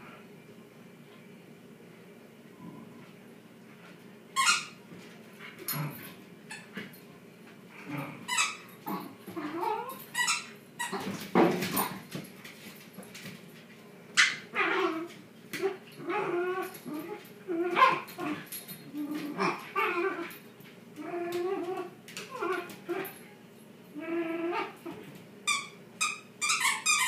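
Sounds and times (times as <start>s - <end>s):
dogs yipping and whining: 4.4s - 4.8s, 8.2s - 11.2s, 14.2s - 20.4s, 21.0s - 23.2s, 24.0s - 27.0s.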